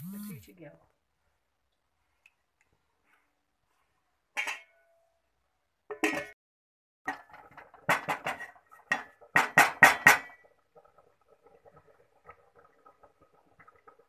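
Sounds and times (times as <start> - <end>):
metal vessel knocking on pot rim: 7.1 - 10.4
milk bubbling in pot: 7.1 - 14.0.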